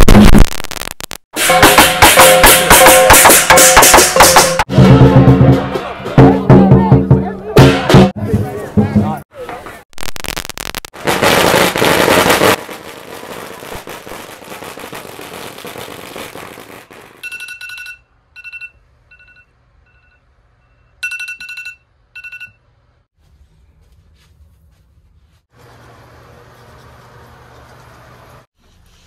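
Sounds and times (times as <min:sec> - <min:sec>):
firecrackers banging: 0:01.4 - 0:05.4, 0:09.5 - 0:17.3
high ringing tone: 0:17.2 - 0:22.6.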